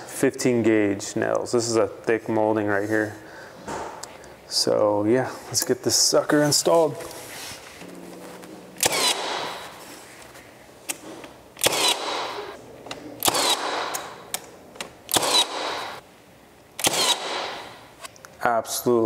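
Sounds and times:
nail gun shots: 0:08.8 - 0:09.6, 0:11.6 - 0:12.5, 0:13.2 - 0:14.2, 0:15.1 - 0:16.0, 0:16.8 - 0:17.8.

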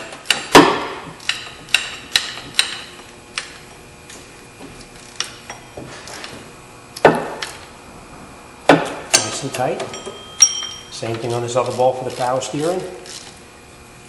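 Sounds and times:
ratchet wrench clicking: 0:01.2 - 0:03.6, 0:09.1 - 0:13.4.

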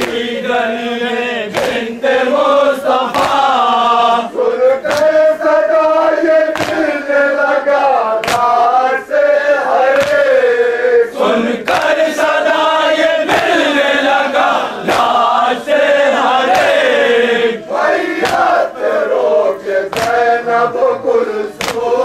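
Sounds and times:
hands slapping chests: 0:00.0 - 0:00.3, 0:01.5 - 0:02.0, 0:02.9 - 0:03.7, 0:04.8 - 0:05.4, 0:06.4 - 0:07.0, 0:08.2 - 0:08.8, 0:09.9 - 0:10.4, 0:11.6 - 0:12.2, 0:14.4 - 0:15.4, 0:16.4 - 0:17.0, 0:18.1 - 0:18.7, 0:19.9 - 0:20.4, 0:21.5 - 0:22.0
men chanting in unison: 0:00.0 - 0:22.0.

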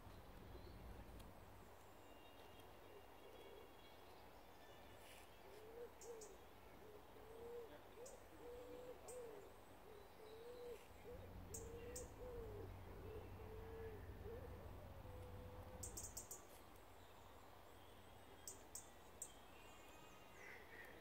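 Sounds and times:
pigeon cooing: 0:06.8 - 0:15.7.

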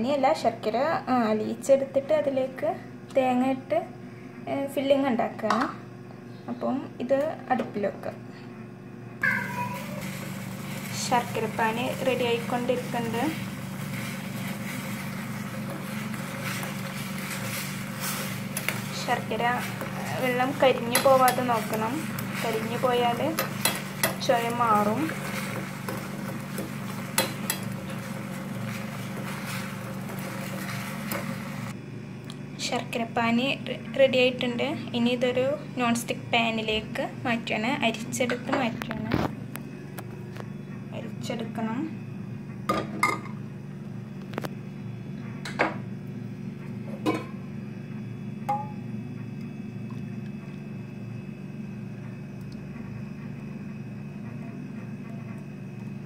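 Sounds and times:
steady low hum: 0:00.0 - 0:56.0
utensils clinking against pan: 0:22.6 - 0:28.0.

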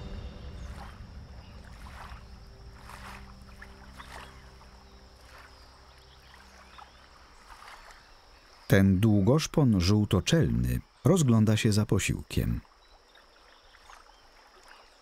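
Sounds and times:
soft water splashes: 0:00.0 - 0:08.7, 0:12.6 - 0:15.0
low background music tones: 0:00.0 - 0:10.0.

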